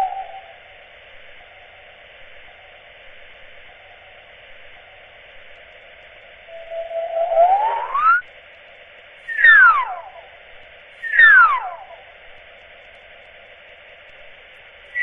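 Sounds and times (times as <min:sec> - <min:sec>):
falling electronic whistles: 0:00.0 - 0:00.7, 0:06.5 - 0:08.3, 0:09.2 - 0:10.3, 0:11.0 - 0:12.0
thin radio-like hiss: 0:00.0 - 0:15.0.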